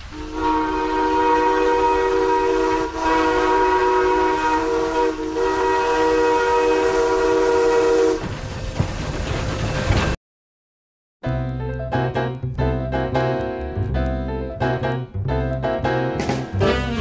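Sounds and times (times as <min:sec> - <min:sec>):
chime train whistle blasts: 0:00.1 - 0:08.2.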